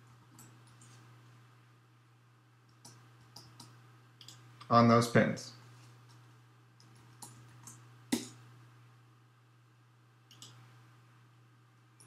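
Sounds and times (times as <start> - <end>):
mouse and keyboard clicks: 6.8 - 8.4.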